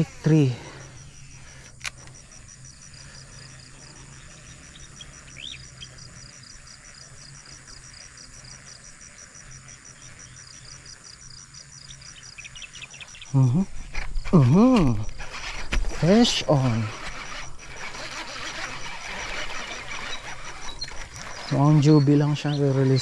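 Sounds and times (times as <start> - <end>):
bird chirp: 0.0 - 18.2, 18.9 - 23.0
insects chirping: 0.0 - 23.0
sharp click: 1.6 - 2.2.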